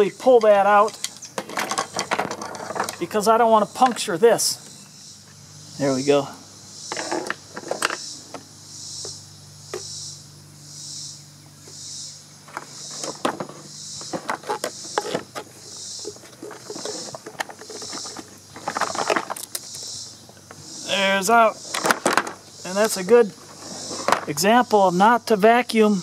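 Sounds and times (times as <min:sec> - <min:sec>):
insects chirping: 0:00.0 - 0:26.0
vacuum cleaner being handled: 0:12.5 - 0:19.7.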